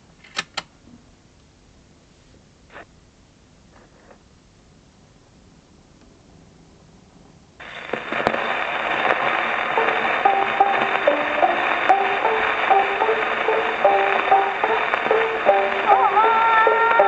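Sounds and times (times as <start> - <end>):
record surface hiss and crackle: 0.0 - 17.0
instrumental music recording: 7.6 - 17.0.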